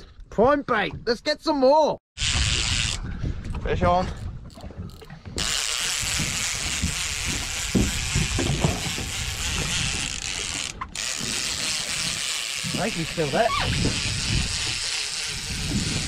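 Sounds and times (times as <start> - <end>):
fishing reel ratcheting: 2.2 - 3.1, 4.2 - 16.0.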